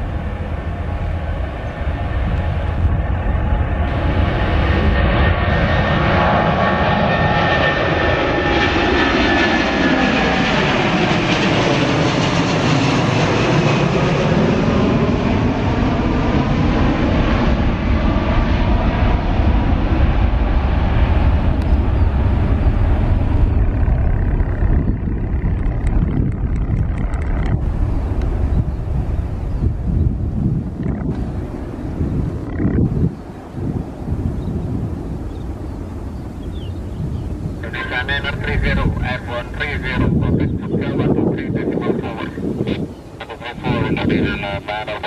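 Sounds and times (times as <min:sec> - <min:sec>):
jet airliner taking off: 0:00.0 - 0:45.0.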